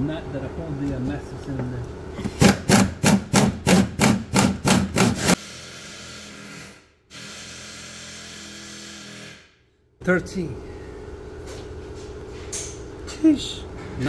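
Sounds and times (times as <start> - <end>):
steady low hum: 9.6 - 14.0.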